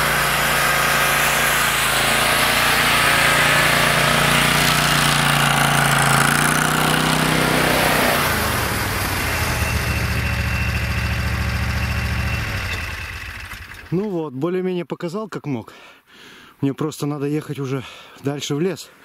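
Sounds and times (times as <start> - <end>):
snowmobile engine running: 0.0 - 13.9.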